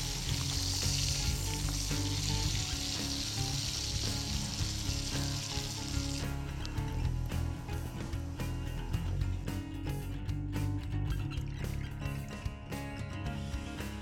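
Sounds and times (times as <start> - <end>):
bacon sizzling in a pot: 0.0 - 10.0.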